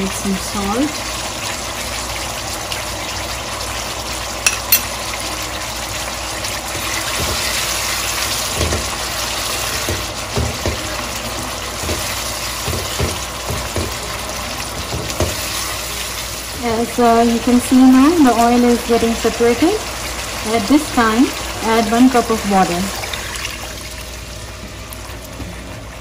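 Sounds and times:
masala sizzling in oil: 0:00.0 - 0:26.0
spatula knocking against pan: 0:11.8 - 0:14.0.

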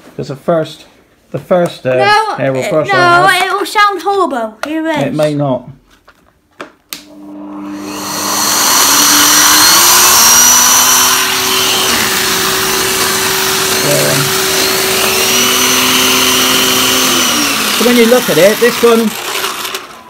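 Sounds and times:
vacuum cleaner running: 0:07.0 - 0:20.0.

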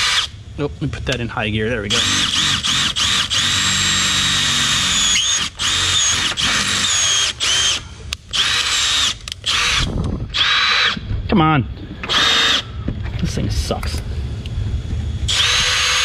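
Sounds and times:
drill whining through metal: 0:00.0 - 0:00.4, 0:01.9 - 0:11.1, 0:12.0 - 0:12.7, 0:15.2 - 0:16.0.

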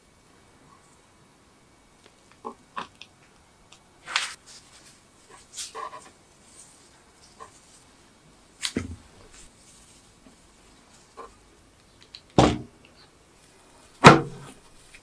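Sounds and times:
dull thump: 0:14.0 - 0:14.6.

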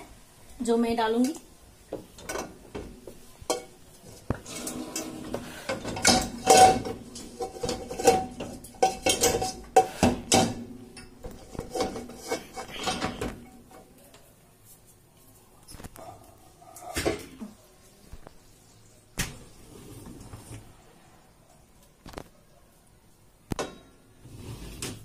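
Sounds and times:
metal pots clattering on wire racks: 0:02.0 - 0:13.9, 0:16.8 - 0:17.6.

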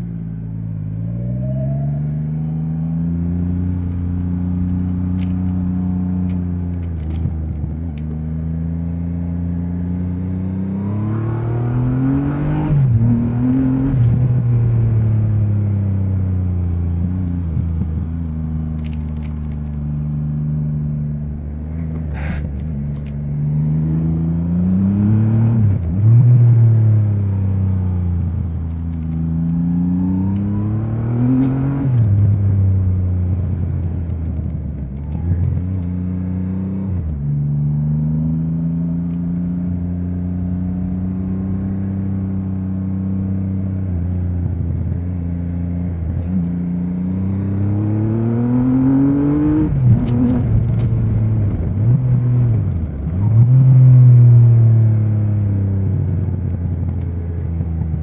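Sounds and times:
motorcycle engine revving: 0:34.4 - 0:58.0.

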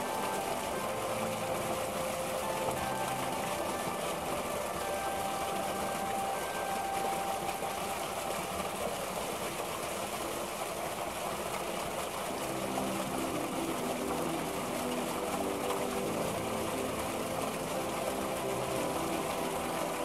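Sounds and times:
pump machinery running: 0:00.0 - 0:20.0
water gushing from pipe: 0:00.0 - 0:20.0.

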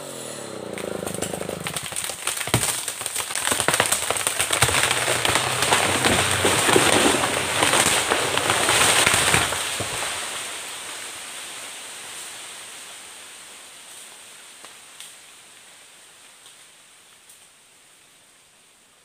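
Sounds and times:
tree trunk cracking: 0:00.5 - 0:11.3
branches snapping and crackling: 0:00.6 - 0:12.5.

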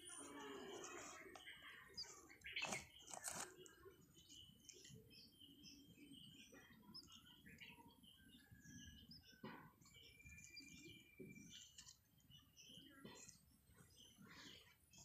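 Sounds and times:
faint bird chirps: 0:00.0 - 0:15.0.

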